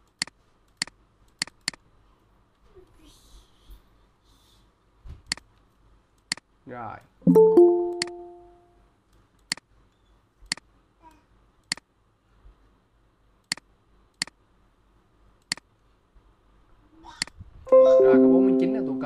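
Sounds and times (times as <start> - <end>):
computer mouse clicking: 0.0 - 1.8, 5.2 - 6.5, 9.1 - 9.7, 11.6 - 11.9, 13.4 - 14.4, 15.4 - 15.7.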